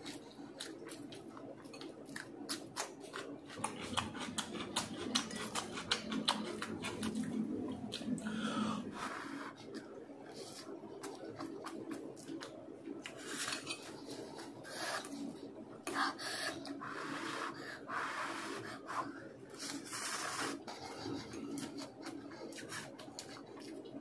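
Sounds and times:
chewing: 0:00.0 - 0:08.3, 0:09.7 - 0:15.4, 0:20.6 - 0:24.0
slurping noodles: 0:19.5 - 0:23.4.

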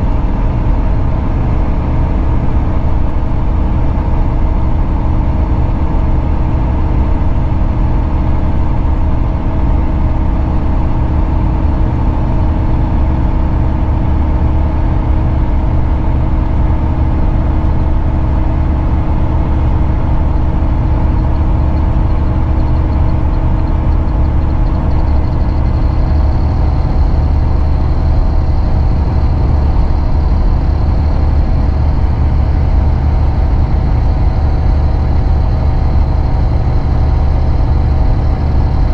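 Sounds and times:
coach diesel engine drone: 0:00.0 - 0:38.9
faint high whine: 0:19.9 - 0:38.9.

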